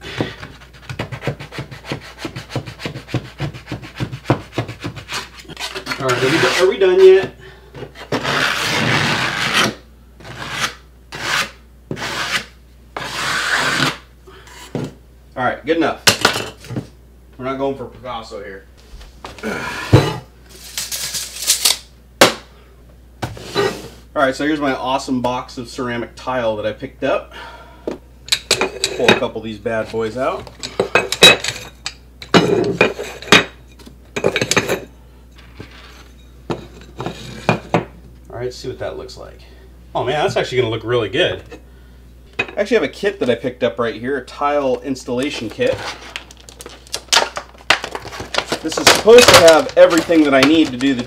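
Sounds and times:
hand scraper scraping caulk: 0:00.1 - 0:07.0, 0:08.0 - 0:14.0.

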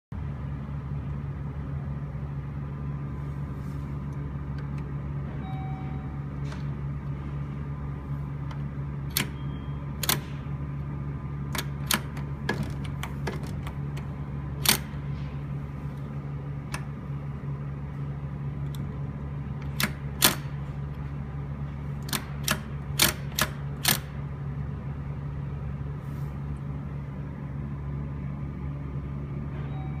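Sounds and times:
steady low hum: 0:00.1 - 0:30.0
elevator door interlock clicks: 0:08.4 - 0:10.6, 0:11.5 - 0:15.1, 0:19.6 - 0:20.7, 0:22.0 - 0:24.2.

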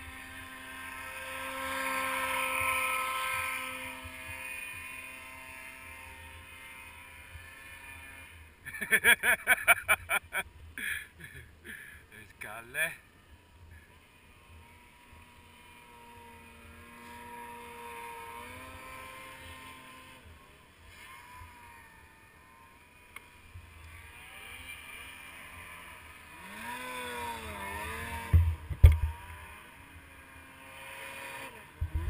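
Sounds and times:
snowmobile engines revving: 0:00.0 - 0:13.1, 0:13.7 - 0:32.0.

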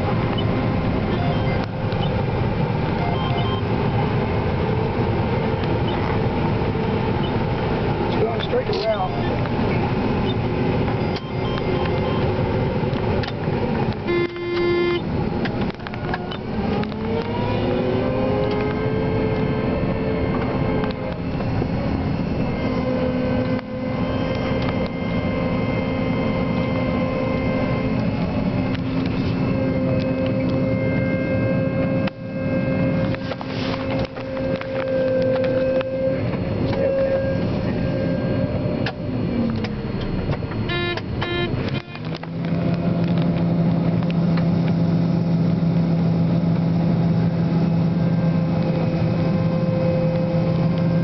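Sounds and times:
diesel engine and threshing drone: 0:00.0 - 0:51.0
machine whine rising in pitch: 0:15.9 - 0:51.0
steady tone: 0:16.2 - 0:43.0.

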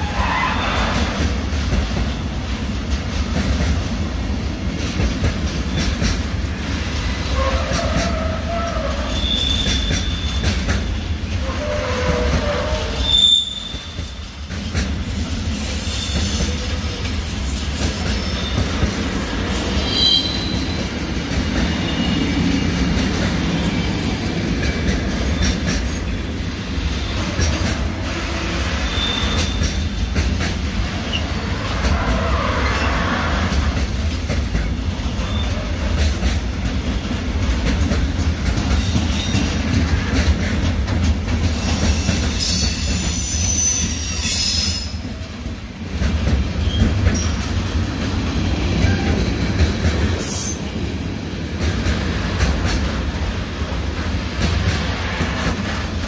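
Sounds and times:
freight train rumbling past: 0:00.0 - 0:56.0
high-pitched wheel squeal: 0:08.3 - 0:10.4, 0:11.4 - 0:14.0, 0:19.7 - 0:20.7, 0:28.8 - 0:29.6, 0:41.7 - 0:45.0.

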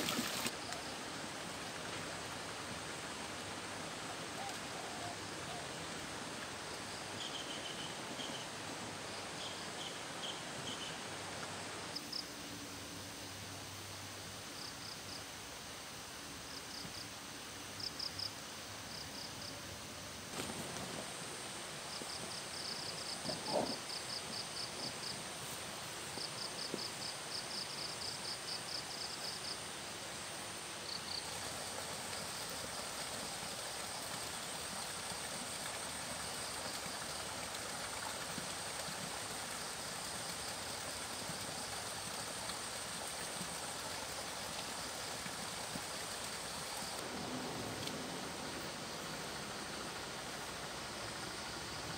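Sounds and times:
insects chirping: 0:00.0 - 0:01.5, 0:16.4 - 0:37.4, 0:38.6 - 0:51.9
soft hiss: 0:00.0 - 0:51.9
high insect drone: 0:39.5 - 0:51.9.

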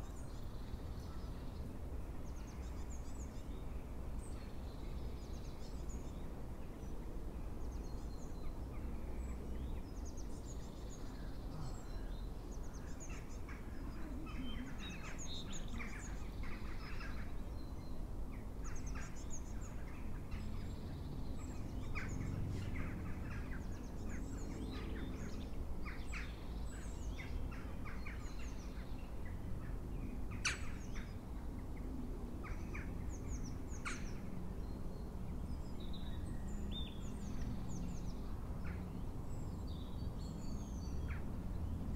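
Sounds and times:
birds chirping and calling: 0:11.0 - 0:17.4.

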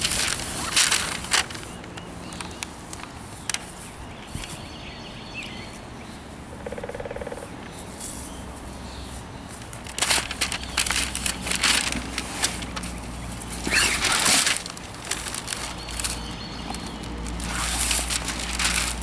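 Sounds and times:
fabric and plastic crinkling: 0:00.0 - 0:04.6, 0:09.5 - 0:19.0
loud crackle: 0:16.8 - 0:19.0.

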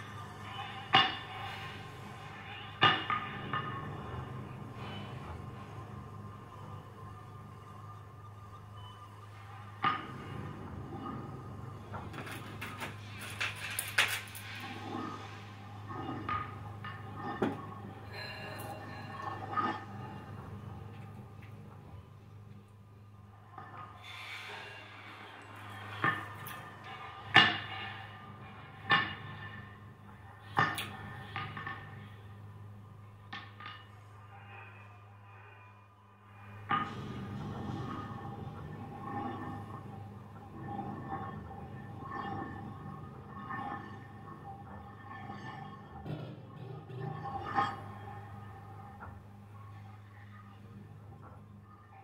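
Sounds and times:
low steady hum: 0:00.0 - 0:52.0
clattering knocks and clicks: 0:11.9 - 0:14.6.

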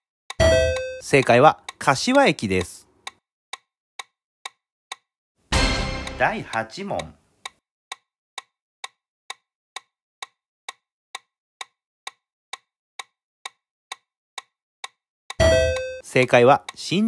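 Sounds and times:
clock ticking: 0:00.4 - 0:17.0.

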